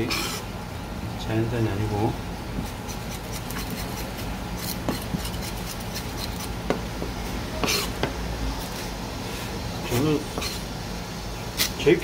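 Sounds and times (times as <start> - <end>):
knife tapping and scraping on board: 2.6 - 8.2, 10.3 - 10.6.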